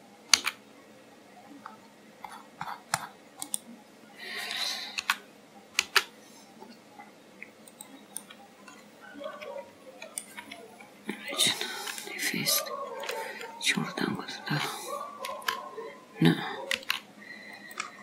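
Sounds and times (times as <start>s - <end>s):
mouse and keyboard clicks: 0.3s - 0.6s, 2.9s - 3.7s, 5.8s - 6.1s, 15.2s - 15.6s, 16.7s - 17.0s.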